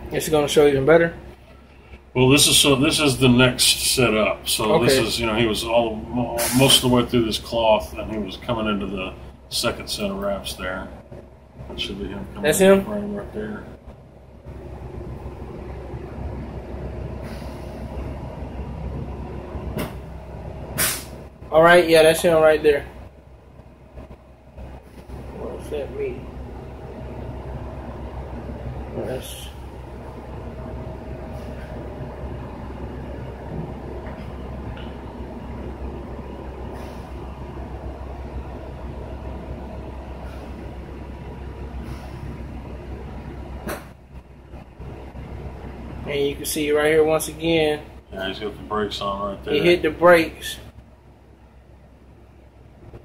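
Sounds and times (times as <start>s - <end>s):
faint hum: 0.0s - 53.0s
low mechanical rumble: 0.0s - 53.0s
short hiss: 6.4s - 6.8s, 20.8s - 21.2s.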